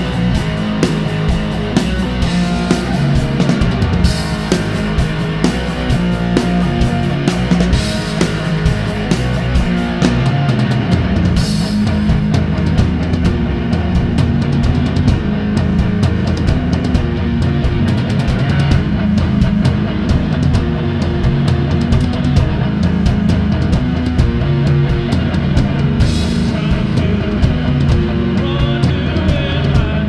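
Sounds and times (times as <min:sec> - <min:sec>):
drum kit playing: 0:00.0 - 0:30.0
electric guitar: 0:00.0 - 0:30.0.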